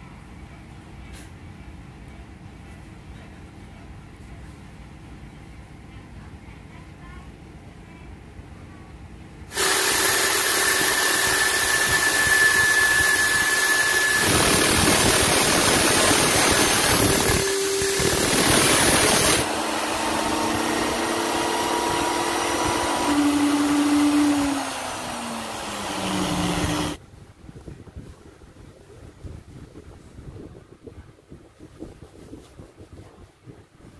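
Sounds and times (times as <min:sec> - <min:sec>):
angle grinder grinding metal: 0:09.5 - 0:27.0
drill spinning shaft on abrasive: 0:09.5 - 0:27.0.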